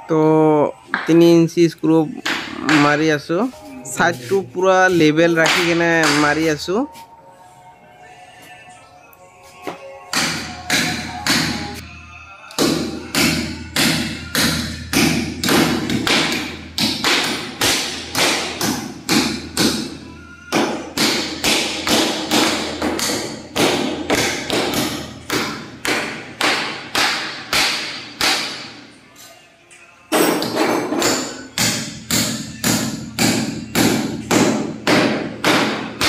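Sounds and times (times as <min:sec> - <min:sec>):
hammer striking fasteners into wood: 0:12.6 - 0:28.7, 0:30.1 - 0:36.0.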